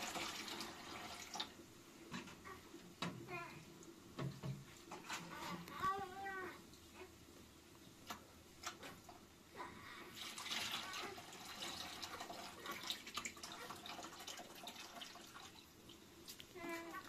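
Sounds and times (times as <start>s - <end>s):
water pouring and splashing: 0.0s - 1.6s, 10.1s - 17.0s.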